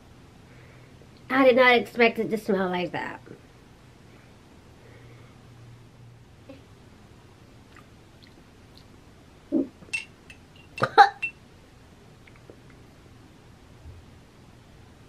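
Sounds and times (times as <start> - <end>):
woman gagging and coughing: 10.8 - 11.2.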